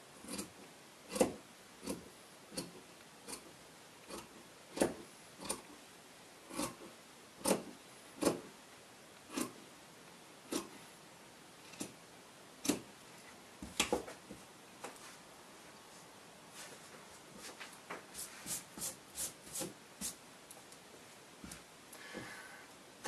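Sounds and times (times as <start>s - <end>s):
shears snipping fabric: 4.1s - 5.7s, 6.5s - 6.8s, 7.4s - 8.4s, 9.3s - 9.6s.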